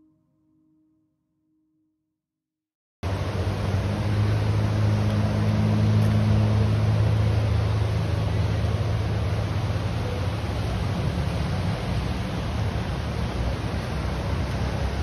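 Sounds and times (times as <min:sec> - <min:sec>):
engine running: 0:03.0 - 0:15.0.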